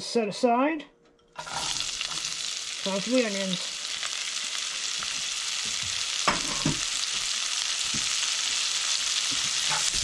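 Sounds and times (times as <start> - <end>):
onions sizzling in a frying pan: 1.4 - 10.0
wooden spoon knocking a pan: 5.1 - 8.2.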